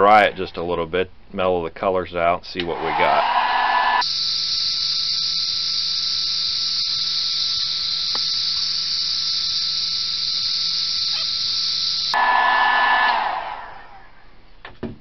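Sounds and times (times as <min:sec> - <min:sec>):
heat gun fan hissing and whining: 0:02.6 - 0:14.2.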